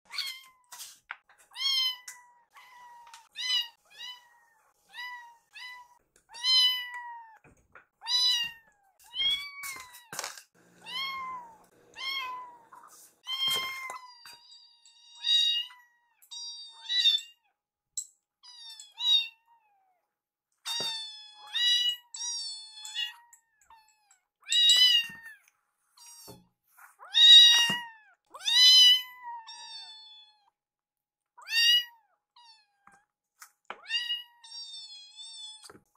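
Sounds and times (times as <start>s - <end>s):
kittens meowing: 1.5s - 7.4s, 8.0s - 10.2s, 10.8s - 17.4s, 20.7s - 25.4s, 27.0s - 30.5s, 31.4s - 32.8s.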